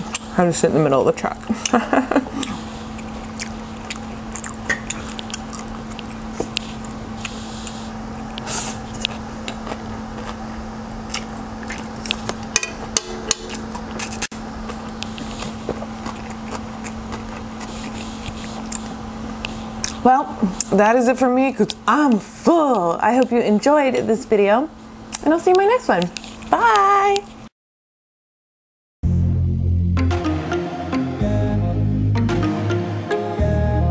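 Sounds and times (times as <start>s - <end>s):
steady low hum: 0.0s - 27.5s
chewing and mouth sounds: 2.4s - 12.5s, 13.5s - 20.7s.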